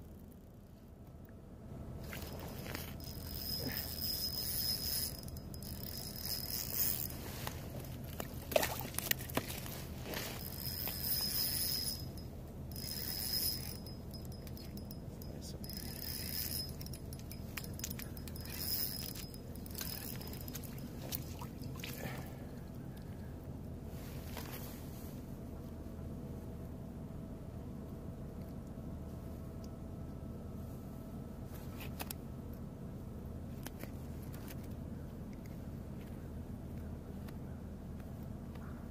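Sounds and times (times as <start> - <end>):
fishing reel whirring: 2.2 - 8.0, 10.1 - 15.0, 15.6 - 21.8.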